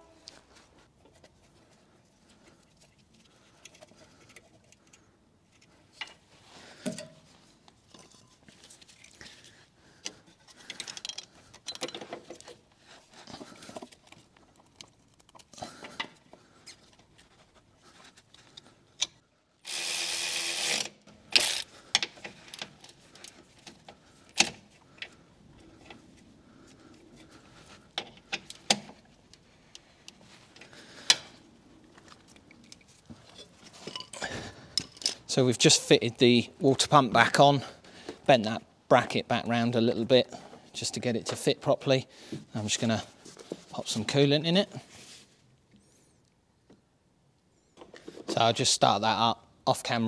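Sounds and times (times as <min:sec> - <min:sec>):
hand tools clicking and clinking: 0:10.0 - 0:12.6, 0:32.1 - 0:35.3.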